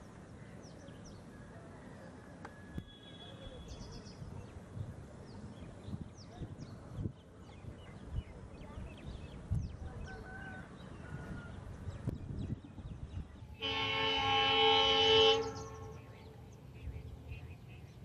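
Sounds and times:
birds chirping: 0:02.5 - 0:18.0
locomotive air horn blast: 0:13.6 - 0:16.2.

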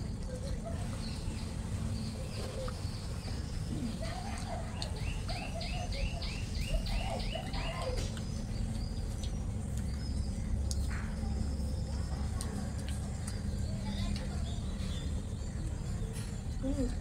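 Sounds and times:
steady low hum: 0:00.0 - 0:17.0
animal chirping: 0:00.9 - 0:12.2.

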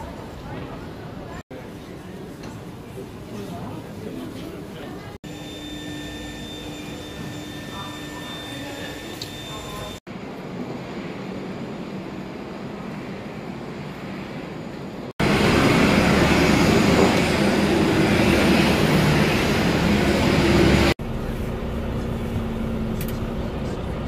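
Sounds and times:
vehicle running noise: 0:15.2 - 0:24.0.

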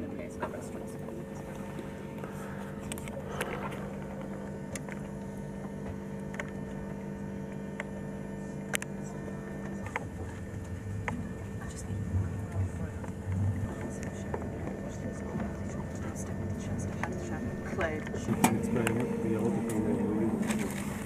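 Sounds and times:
low droning tone: 0:00.0 - 0:21.0
train running hum: 0:08.7 - 0:21.0.

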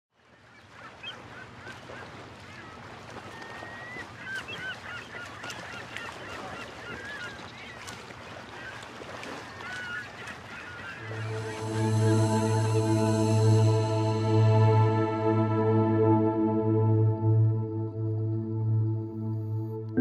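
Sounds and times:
birds squawking and chirping: 0:09.5 - 0:12.0
low steady hum: 0:11.0 - 0:20.0.

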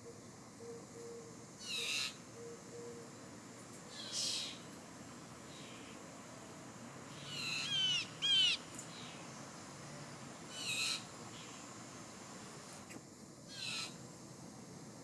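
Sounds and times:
bird calls: 0:00.0 - 0:03.1, 0:03.9 - 0:04.6, 0:07.1 - 0:09.2, 0:10.5 - 0:11.6, 0:13.5 - 0:14.0
faint steady hum: 0:00.0 - 0:15.0.

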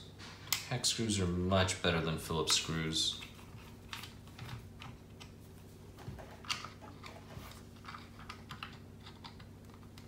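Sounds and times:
plastic parts clicking and rattling: 0:06.0 - 0:10.0.

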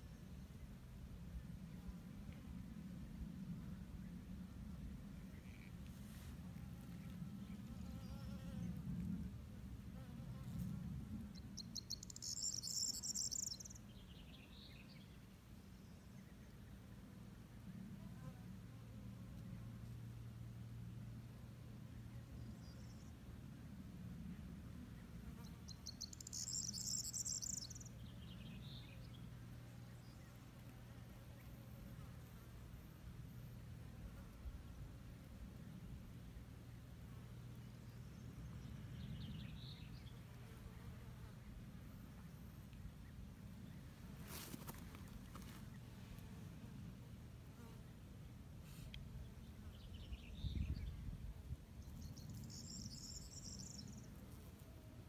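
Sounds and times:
faint low rumble: 0:00.0 - 0:55.0
faint high chirps: 0:11.4 - 0:13.9, 0:25.5 - 0:28.8, 0:51.8 - 0:54.1
insect trilling: 0:11.6 - 0:13.8, 0:25.7 - 0:27.9.

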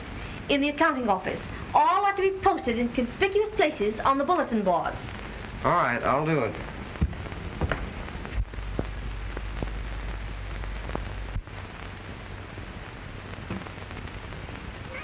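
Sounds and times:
film soundtrack hiss and crackle: 0:00.0 - 0:15.0
scattered pops: 0:00.4 - 0:15.0
low hum: 0:03.9 - 0:15.0.

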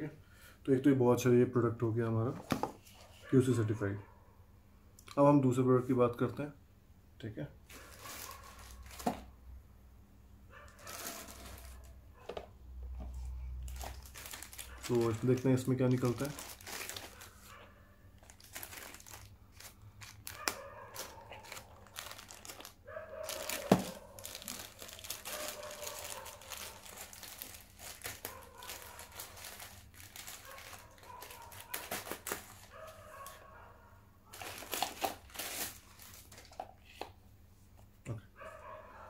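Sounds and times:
packaging crinkling and tearing: 0:07.7 - 0:09.3, 0:10.7 - 0:11.9, 0:13.6 - 0:17.6, 0:18.2 - 0:33.4, 0:34.3 - 0:37.0.

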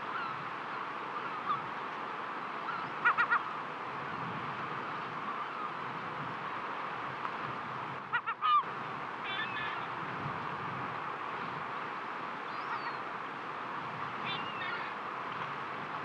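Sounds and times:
bird calling: 0:02.7 - 0:03.6, 0:08.1 - 0:08.7, 0:09.3 - 0:09.9, 0:12.5 - 0:13.0, 0:14.2 - 0:15.0.

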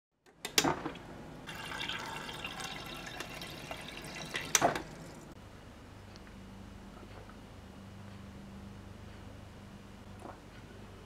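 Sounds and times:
water pouring into a glass: 0:01.5 - 0:05.3.

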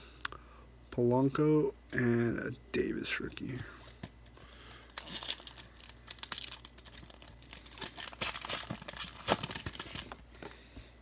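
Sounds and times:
wrapper tearing and crinkling: 0:04.9 - 0:10.2.

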